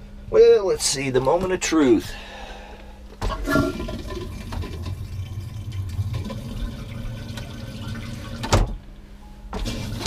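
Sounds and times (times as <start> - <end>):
toilet flush clunk: 3.2 - 8.8, 9.6 - 10.0
water rushing into toilet bowl: 3.3 - 8.5, 9.6 - 10.0.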